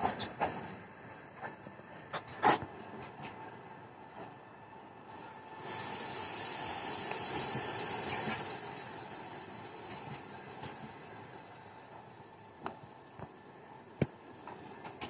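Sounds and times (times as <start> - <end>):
train wheels rumbling on rails: 0.0 - 15.0
loud high-pitched air hiss: 5.0 - 12.4.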